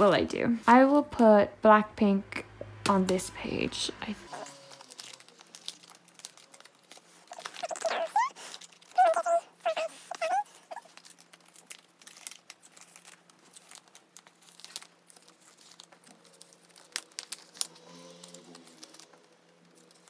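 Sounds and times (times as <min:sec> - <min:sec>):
plastic sleeves crinkling: 0:04.1 - 0:20.0.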